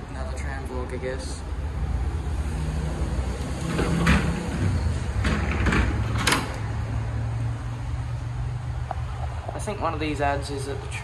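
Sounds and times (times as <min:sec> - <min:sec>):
door latch clicks and knocks: 0:05.2 - 0:06.7.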